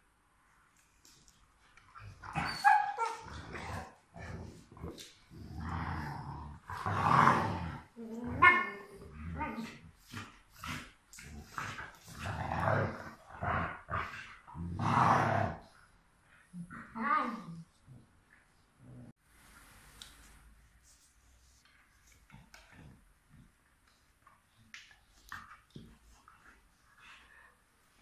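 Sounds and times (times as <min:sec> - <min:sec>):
dogs growling: 0:02.1 - 0:15.8.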